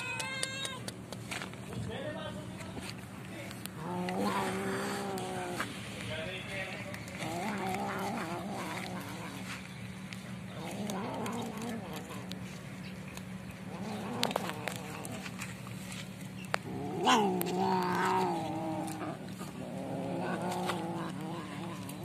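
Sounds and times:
cat yowling: 0.0 - 0.9, 3.8 - 5.6, 16.8 - 19.1
cats growling: 0.0 - 1.0, 3.6 - 22.0.

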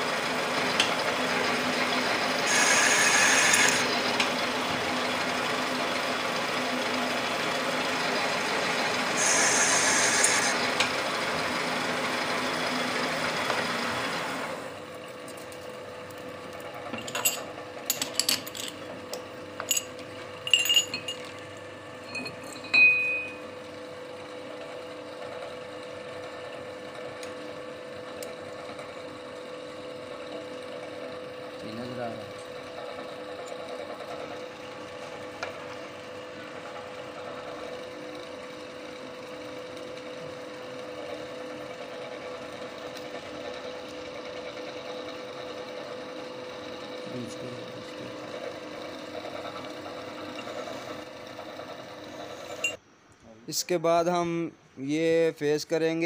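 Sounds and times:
steady machine hum: 0.0 - 14.9, 15.7 - 56.0
metal clinks and taps: 20.5 - 21.3, 22.1 - 23.3.

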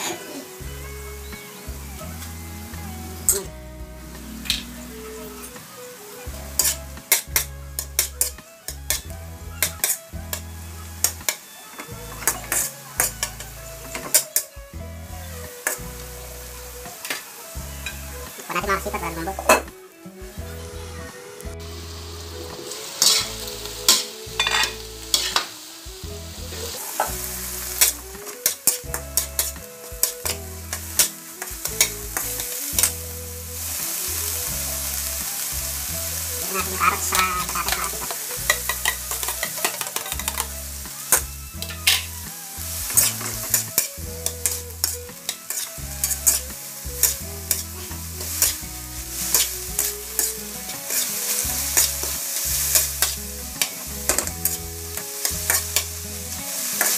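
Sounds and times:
meat sizzling in a wok: 4.0 - 20.8, 21.4 - 56.9
metal spatula scraping a pan: 4.2 - 9.0, 22.3 - 25.5, 36.2 - 42.2, 42.8 - 56.9
vegetables sliding into pan: 48.2 - 56.9.

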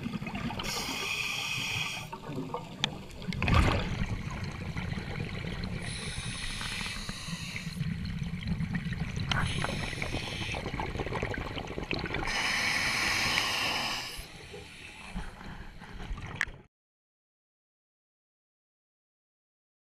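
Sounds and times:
underwater bubbling: 0.0 - 16.7
diver breathing through regulator: 0.6 - 2.2, 5.8 - 7.8, 9.3 - 10.8, 12.2 - 16.0.

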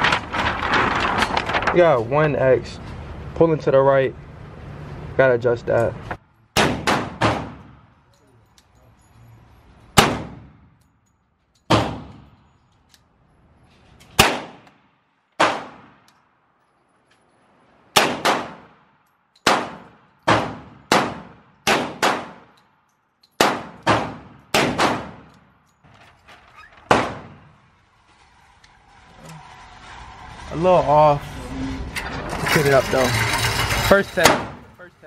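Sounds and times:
pistol shots with echo: 6.6 - 7.8, 10.0 - 10.6, 14.2 - 14.6, 18.0 - 18.7, 19.4 - 22.5, 23.4 - 25.3.

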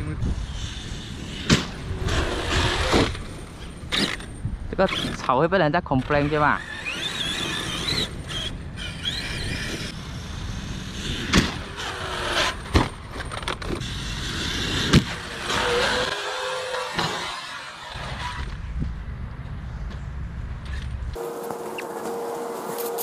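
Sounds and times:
tyres running over grass: 21.2 - 23.0.

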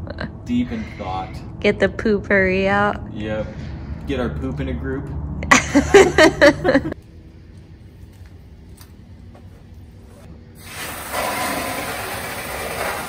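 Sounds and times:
water spraying into truck bed: 10.6 - 13.0.

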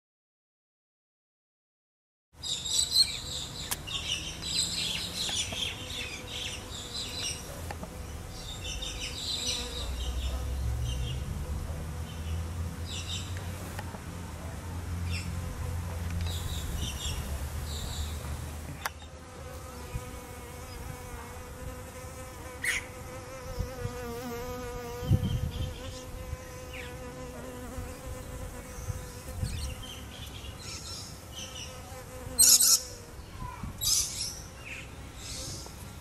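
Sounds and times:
bee buzzing: 2.8 - 13.8, 15.2 - 33.2.

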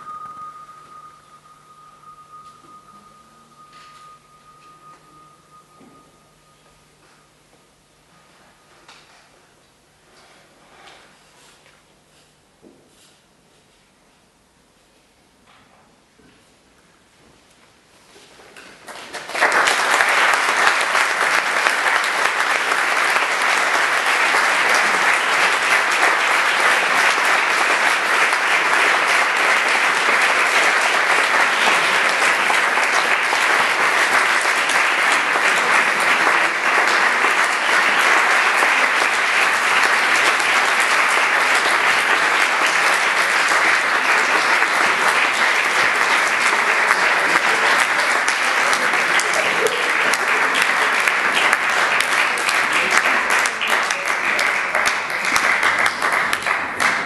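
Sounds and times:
crowd applauding: 0.0 - 6.1, 18.8 - 57.0.

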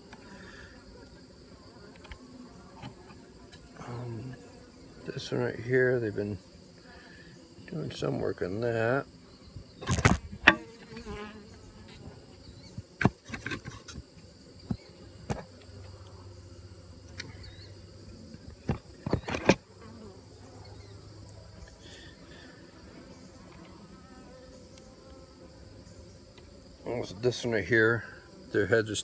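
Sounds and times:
honeybees buzzing: 0.0 - 29.0
knocks of wooden hive bars: 9.7 - 15.6, 18.3 - 20.1.

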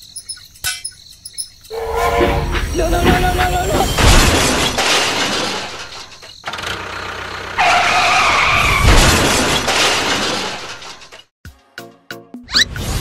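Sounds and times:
toy train crash with shattering: 3.0 - 6.5, 8.7 - 11.3.

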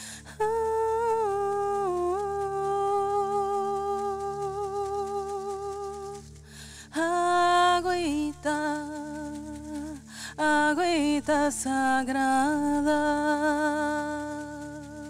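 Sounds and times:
woman singing wordless notes: 0.0 - 6.2, 6.9 - 15.0
singer breathing: 6.4 - 6.9.

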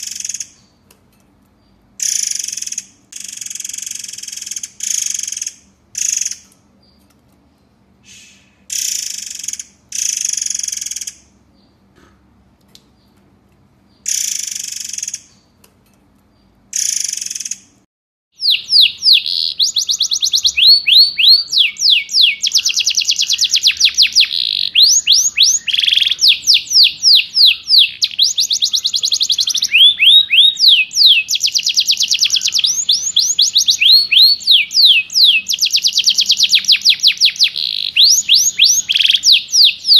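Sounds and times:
harsh buzzy bird calls: 1.7 - 11.9, 16.7 - 17.8, 18.4 - 39.9
rapid high bird notes: 18.4 - 39.9.

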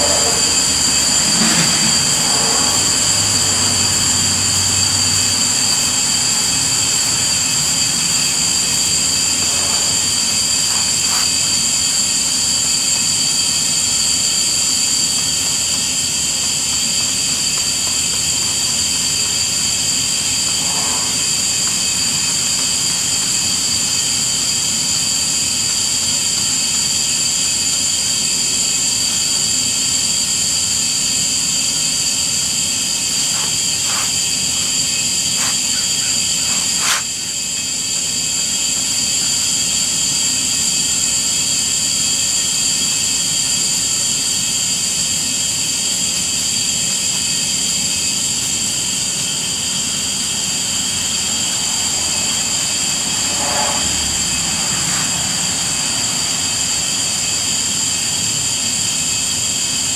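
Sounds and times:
high-pitched insect chorus: 0.0 - 59.9.

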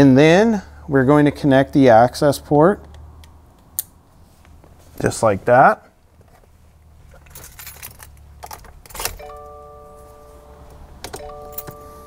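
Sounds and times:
car keys jangling: 7.1 - 9.6, 11.0 - 12.0
electronic chime: 9.2 - 12.0.

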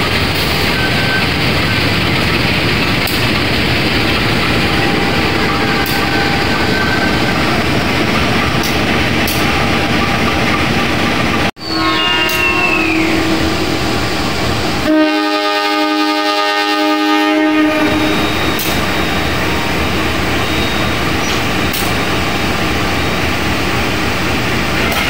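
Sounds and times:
train engine and wheels rumbling: 0.0 - 25.0
locomotive horn blast: 11.6 - 13.9, 14.8 - 18.8.

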